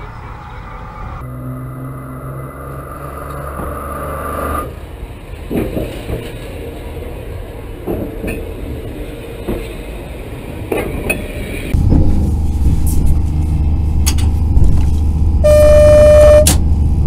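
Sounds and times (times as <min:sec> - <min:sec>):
locomotive rumbling over track: 0:00.0 - 0:17.0
low hum: 0:00.2 - 0:04.9, 0:11.7 - 0:17.0
steady high tone: 0:15.4 - 0:16.5.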